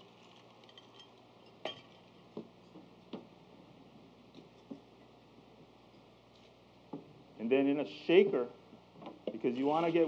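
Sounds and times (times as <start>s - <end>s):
ice cubes clinking in a glass: 0.1s - 2.0s.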